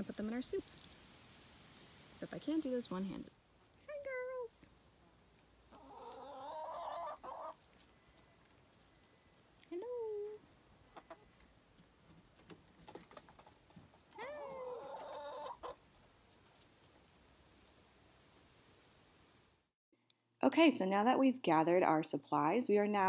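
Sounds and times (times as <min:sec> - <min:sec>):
hens calling: 0:05.6 - 0:08.3, 0:09.7 - 0:15.8.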